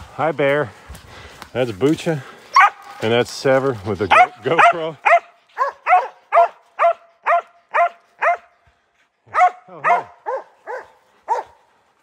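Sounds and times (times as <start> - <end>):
dog barking: 2.6 - 2.9, 4.1 - 8.5, 9.3 - 11.6.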